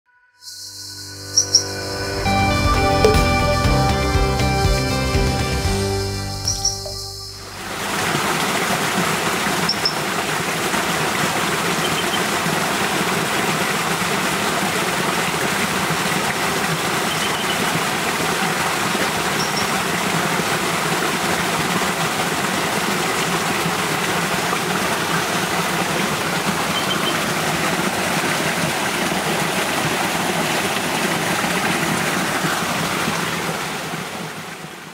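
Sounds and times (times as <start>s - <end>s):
faint high chirps: 0.2s - 1.8s, 6.5s - 7.6s
stream water rushing: 6.5s - 34.9s.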